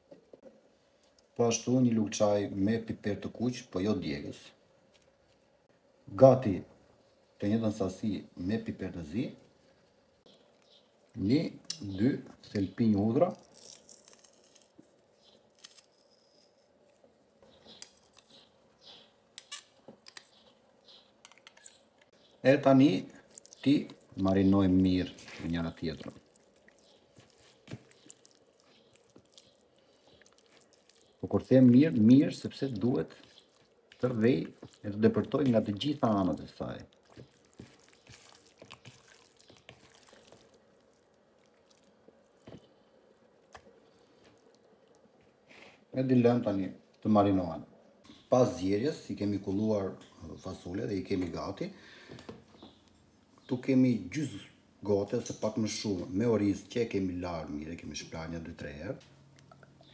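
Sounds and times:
wet squishing of marinated meat: 0:22.5 - 0:45.5.

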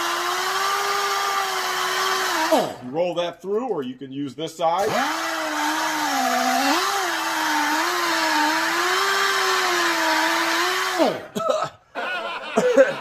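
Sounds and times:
pneumatic buffer whine: 0:00.0 - 0:02.8, 0:04.8 - 0:11.3.

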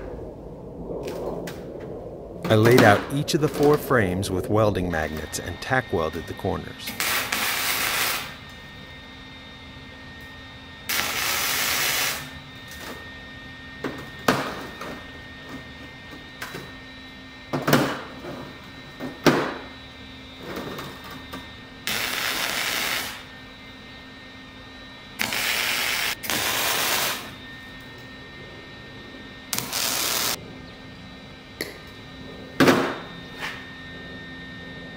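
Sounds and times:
welding arc hiss: 0:05.0 - 0:08.6, 0:10.9 - 0:13.0, 0:21.8 - 0:23.3, 0:25.2 - 0:27.4, 0:29.5 - 0:30.4.

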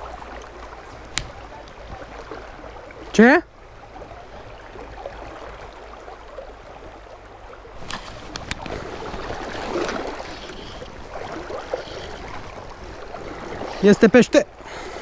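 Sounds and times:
river water rushing and sloshing: 0:00.0 - 0:15.0.

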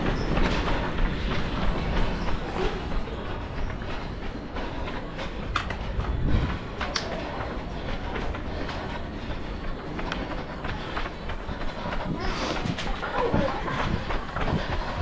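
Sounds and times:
camera rumbling and rubbing: 0:05.1 - 0:15.0.

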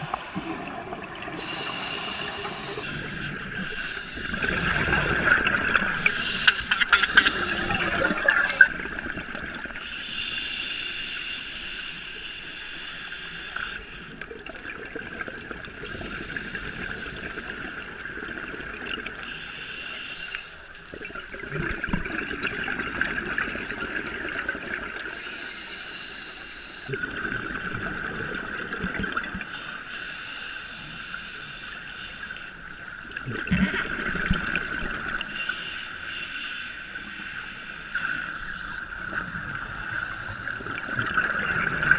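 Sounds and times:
underwater regulator bubbles: 0:00.0 - 0:09.8, 0:40.4 - 0:41.9.

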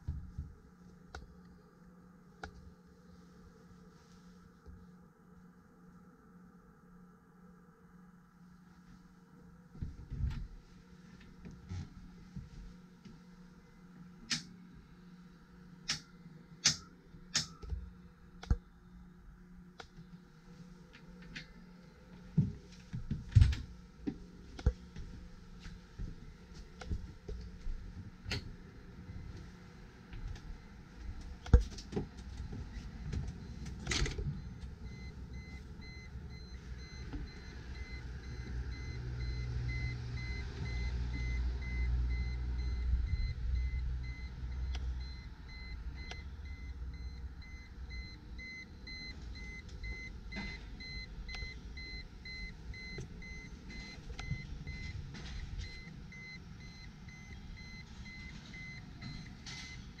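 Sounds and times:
low rumble: 0:32.2 - 0:59.2
faint rapid electronic beeping: 0:32.7 - 1:00.0.

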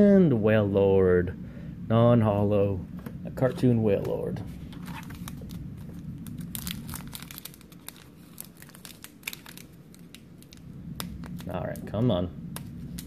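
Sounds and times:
foil wrapper crinkling: 0:04.8 - 0:11.9.

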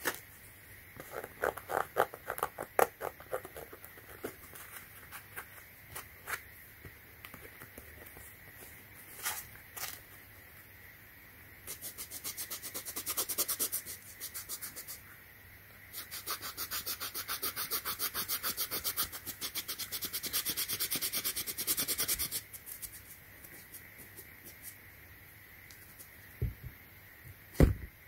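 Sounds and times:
cotton ball rubbing rubber: 0:01.0 - 0:05.6.

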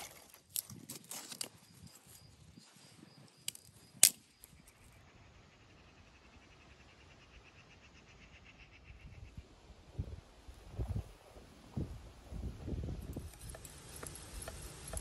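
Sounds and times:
cricket chirping: 0:00.8 - 0:06.3.

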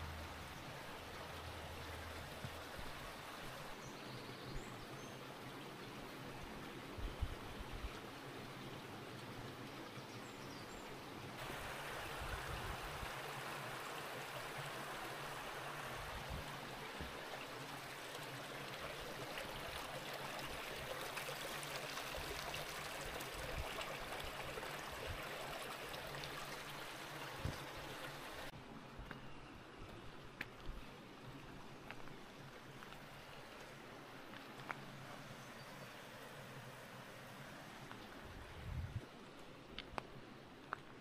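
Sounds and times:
stream rushing: 0:00.0 - 0:04.0, 0:11.0 - 0:28.6, 0:30.9 - 0:40.7.

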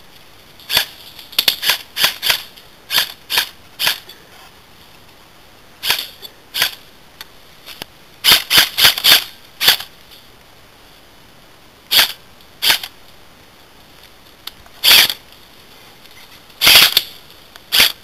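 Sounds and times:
airsoft gun shots: 0:16.6 - 0:17.0.

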